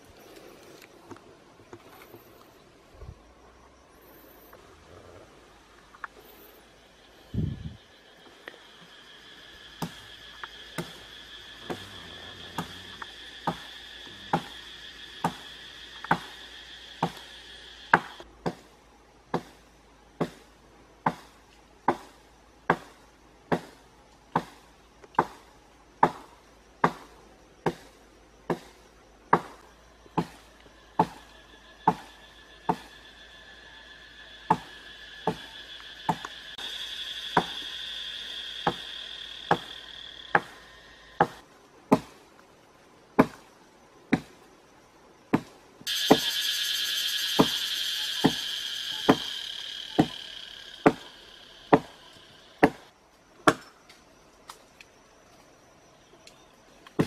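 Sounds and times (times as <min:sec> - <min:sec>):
blade chopping tree branch: 0:41.2 - 0:42.2, 0:47.4 - 0:52.0, 0:52.6 - 0:53.7
high two-tone drone: 0:45.9 - 0:52.2.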